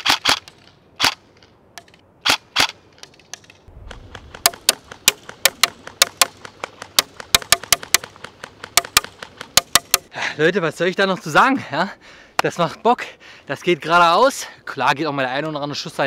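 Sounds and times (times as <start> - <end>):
airsoft rifle shots: 3.8 - 10.1.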